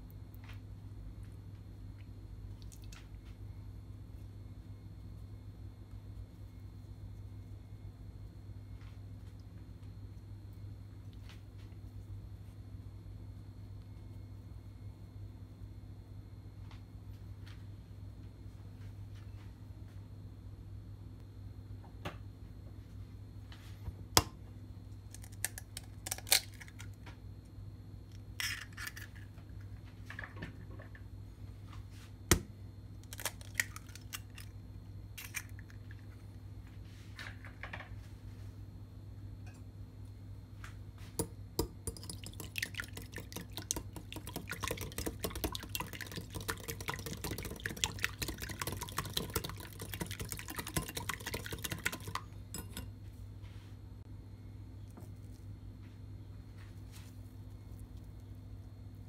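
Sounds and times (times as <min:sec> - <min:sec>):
steady low hum: 0:00.0 - 0:59.0
food crackling and splashing: 0:02.0 - 0:03.1, 0:33.0 - 0:34.6, 0:41.6 - 0:52.8.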